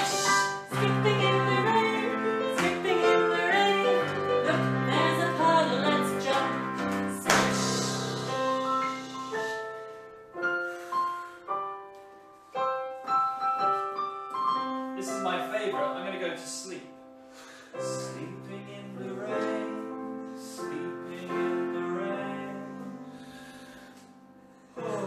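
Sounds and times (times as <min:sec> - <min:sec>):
woman singing: 0:00.0 - 0:08.2
digital piano: 0:00.0 - 0:25.0.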